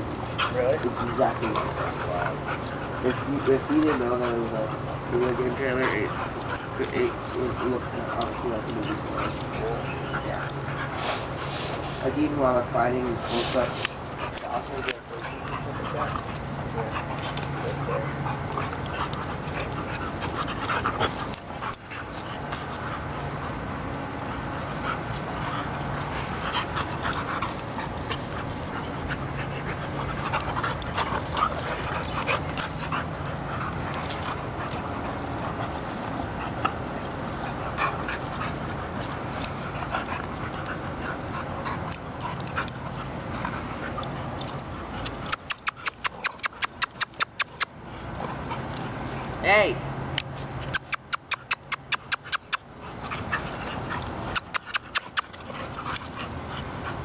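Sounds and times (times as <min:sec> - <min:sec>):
dog vocalizations: 0:24.8 - 0:49.2, 0:50.6 - 0:57.0
rapid sharp ticks: 0:50.2 - 0:52.7.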